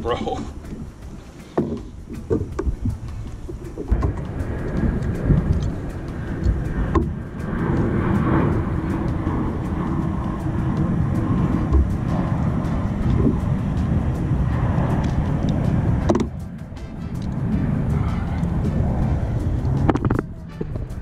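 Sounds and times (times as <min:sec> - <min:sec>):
jet airliner rumble: 0:00.0 - 0:21.0
knocks in plastic kayak: 0:01.6 - 0:02.8.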